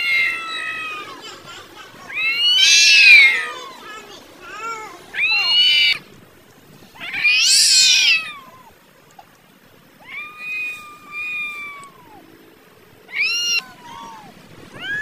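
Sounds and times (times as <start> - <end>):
cats yowling: 0.0 - 3.9, 4.5 - 6.0, 6.9 - 8.9, 10.0 - 12.3, 13.0 - 15.0.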